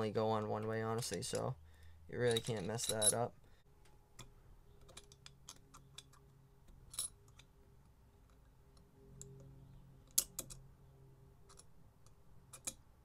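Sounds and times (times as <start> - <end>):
faint low hum: 0.0 - 13.0
metal parts clicking: 2.2 - 3.3, 4.2 - 7.5, 11.4 - 12.9.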